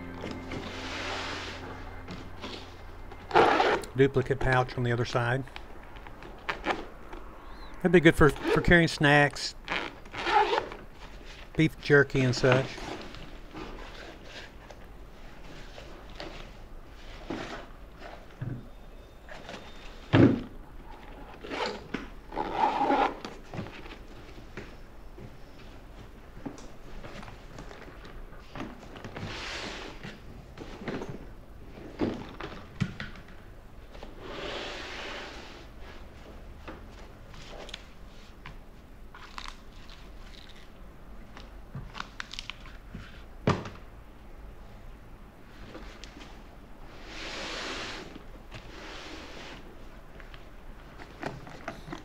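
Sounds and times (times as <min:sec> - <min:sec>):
nylon rustling: 0:00.4 - 0:03.9
zipper closing: 0:03.3 - 0:03.9, 0:09.7 - 0:10.8, 0:21.2 - 0:23.4.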